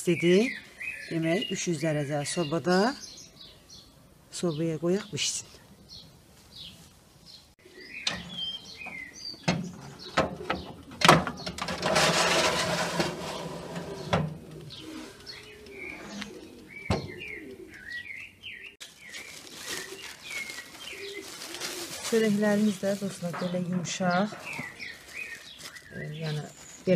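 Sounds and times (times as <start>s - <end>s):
small birds chirping: 0.0s - 11.6s, 13.3s - 26.9s
metal scraping: 11.4s - 15.3s
plastic bag rustling: 11.7s - 16.5s, 18.8s - 26.9s
dove cooing: 13.2s - 18.2s, 19.4s - 26.9s.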